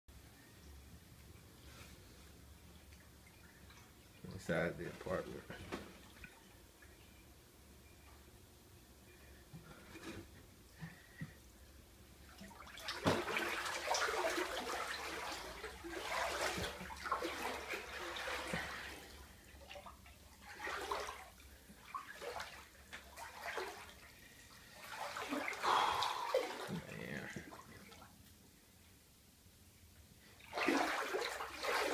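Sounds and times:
water sloshing from wading: 2.7s - 7.1s, 12.2s - 28.2s, 30.4s - 31.9s.

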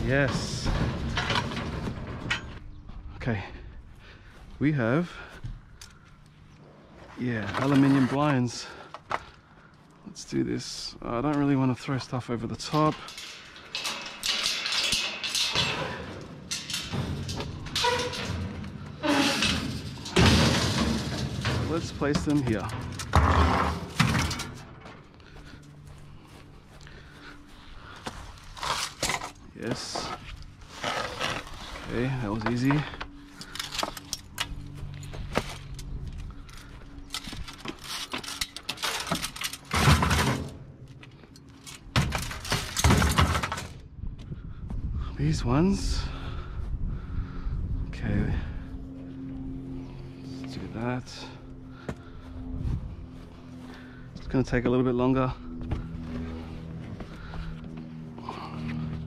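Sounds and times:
metal blind slats rattling: 12.6s - 24.8s
clattering scrape: 12.9s - 24.6s.

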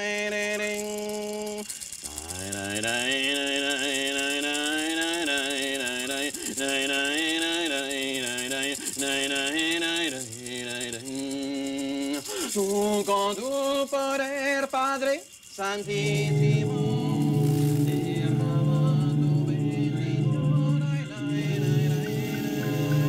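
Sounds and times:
rattle shaking: 0.0s - 23.0s
person singing a slow chant: 15.6s - 23.0s.

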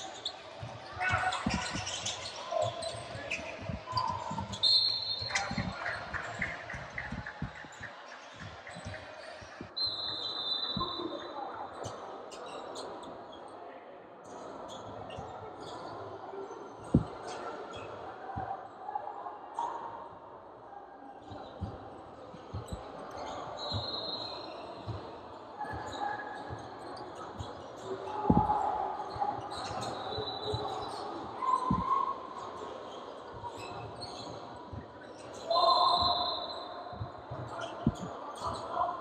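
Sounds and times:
sneaker squeaks: 0.0s - 13.4s, 14.3s - 16.0s, 16.8s - 18.5s, 21.2s - 39.0s
players' voices: 0.0s - 39.0s
basketball bouncing on hardwood: 6.4s - 7.7s.

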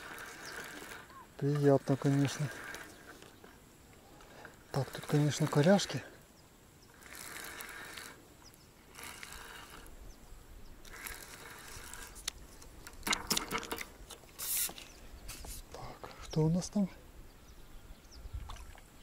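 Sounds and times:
fishing reel winding: 0.0s - 3.5s, 4.2s - 6.2s, 6.8s - 10.1s, 10.8s - 14.8s.

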